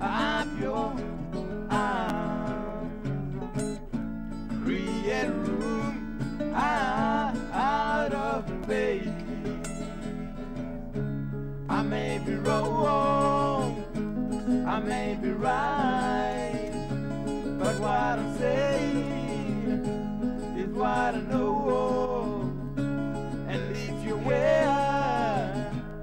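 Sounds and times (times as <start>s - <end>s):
man singing: 0.0s - 3.1s, 4.6s - 9.9s, 11.7s - 13.9s, 14.5s - 16.9s, 17.5s - 19.9s, 20.5s - 22.6s, 23.5s - 26.0s
strummed acoustic guitar: 0.0s - 26.0s.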